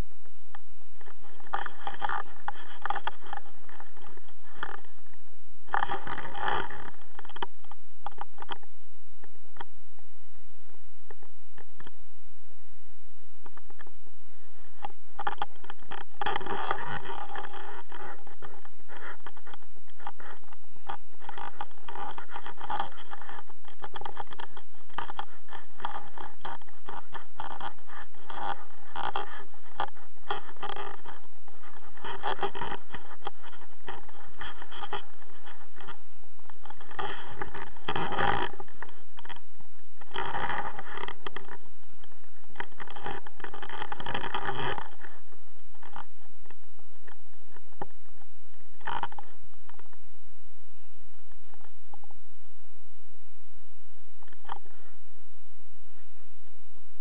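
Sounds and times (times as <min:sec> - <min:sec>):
camera rubbing against jacket: 0:01.0 - 0:08.7, 0:13.4 - 0:50.0, 0:54.2 - 0:55.0.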